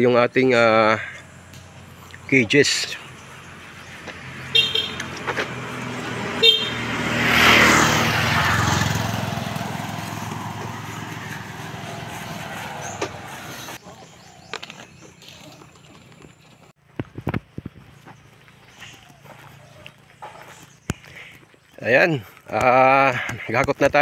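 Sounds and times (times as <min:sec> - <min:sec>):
motor vehicle driving past: 0:01.0 - 0:16.4
car horn toots: 0:04.5 - 0:05.2, 0:06.3 - 0:06.9.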